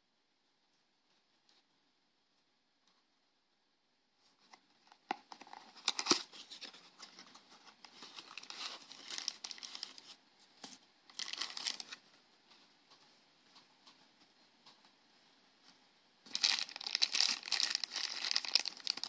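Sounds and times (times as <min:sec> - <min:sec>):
cardboard and plastic crinkling: 0:05.1 - 0:12.0, 0:16.3 - 0:19.0.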